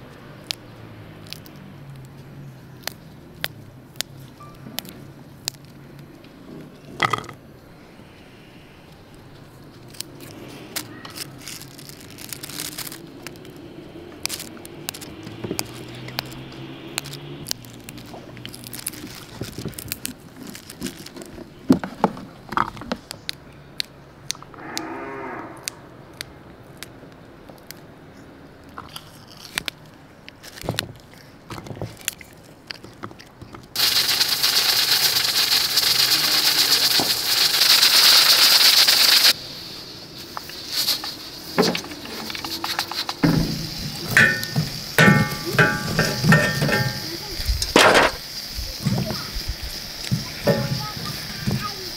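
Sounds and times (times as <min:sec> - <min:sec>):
green beans snapping: 0:00.4 - 0:00.6, 0:01.2 - 0:04.2, 0:04.8 - 0:06.2, 0:09.7 - 0:21.2, 0:28.7 - 0:31.1
pressure cooker steam hiss: 0:33.8 - 0:51.9.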